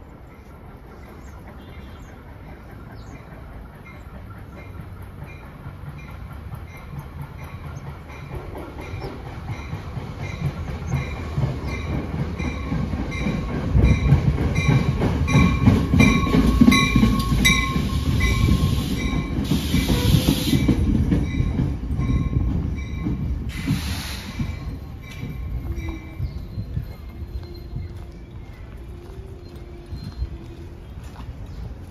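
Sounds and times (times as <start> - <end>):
train wheels rumbling on rail: 0.0 - 31.9
rhythmic clicking: 2.4 - 19.4
bursts of hiss: 23.5 - 24.6.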